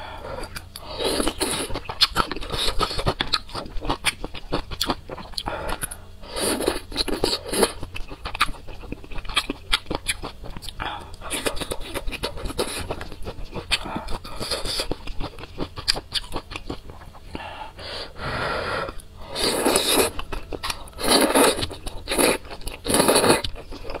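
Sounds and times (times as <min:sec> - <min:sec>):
slurping noodles: 0:18.2 - 0:23.4.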